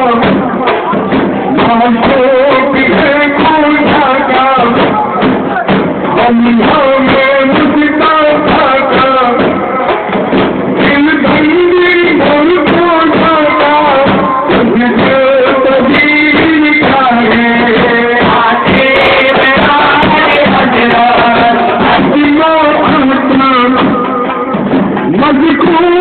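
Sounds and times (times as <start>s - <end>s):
frame drum beating: 0.0s - 26.0s
men chanting in unison: 1.5s - 10.1s, 10.9s - 24.0s.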